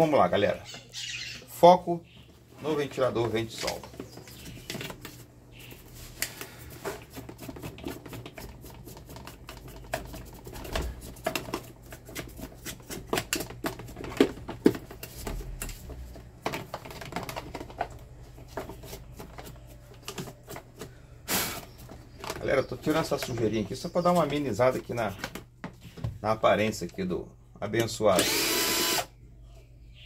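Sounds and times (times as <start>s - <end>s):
brush bristles scrubbing: 5.1s - 10.4s.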